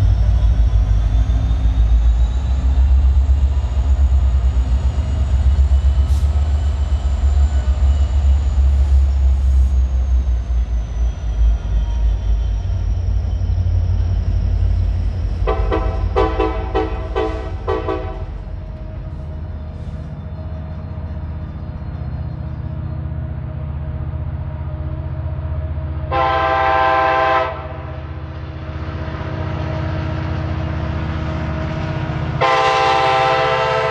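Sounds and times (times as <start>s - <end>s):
locomotive engine rumble: 0.0s - 33.9s
train horn short blasts: 15.4s - 18.4s, 26.1s - 28.0s, 32.4s - 33.9s.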